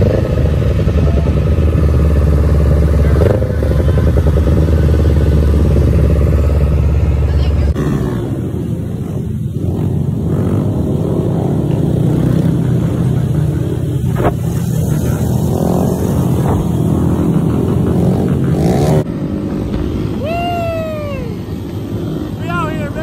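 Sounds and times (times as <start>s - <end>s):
rider whooping: 0.0s - 6.2s, 20.1s - 23.0s
mini-bike engines running: 0.0s - 19.1s, 20.0s - 23.0s
wind on microphone: 14.0s - 17.9s.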